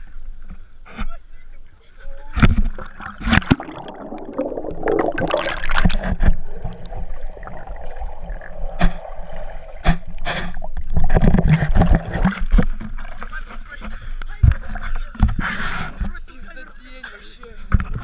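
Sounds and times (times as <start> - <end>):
water splashing: 2.2 - 15.0
muffled underwater gurgling: 2.3 - 15.5.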